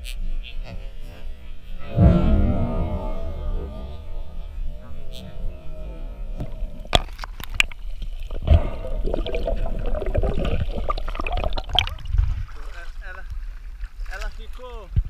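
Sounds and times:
underwater gurgling: 2.7s - 12.6s.

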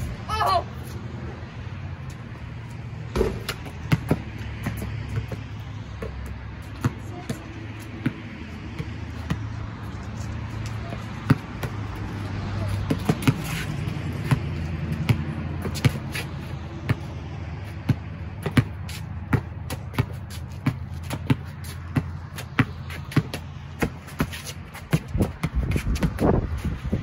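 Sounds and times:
basketball bouncing on concrete: 2.7s - 27.0s.

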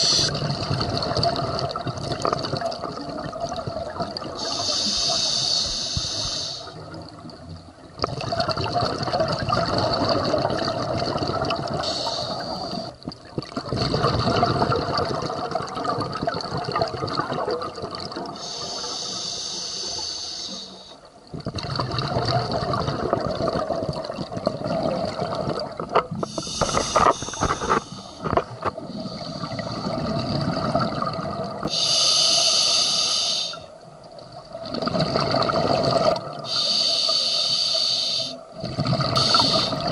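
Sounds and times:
hissing regulator inhale: 0.0s - 0.4s, 4.4s - 6.8s, 11.8s - 12.9s, 18.4s - 21.0s, 26.2s - 29.9s, 31.7s - 33.7s, 36.5s - 38.4s, 39.2s - 39.9s
exhaled bubbles rushing: 0.0s - 4.6s, 6.7s - 18.4s, 21.3s - 31.7s, 34.4s - 36.5s, 38.5s - 39.9s.

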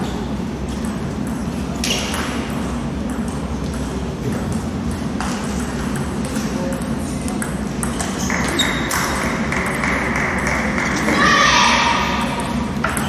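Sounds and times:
murmur of voices in a hall: 1.4s - 13.0s.

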